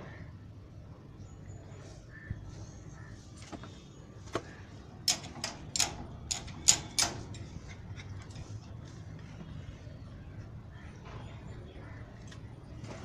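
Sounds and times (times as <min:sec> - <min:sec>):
metal mesh gate rattling: 0:05.0 - 0:08.4
gate latch click: 0:05.1 - 0:07.5.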